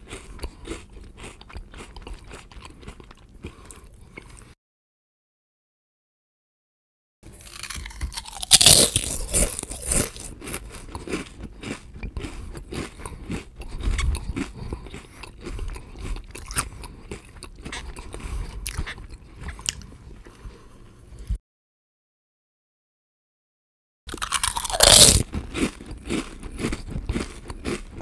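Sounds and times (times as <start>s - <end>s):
person crunching potato chips: 0.0s - 4.5s, 7.3s - 20.0s, 24.1s - 28.0s.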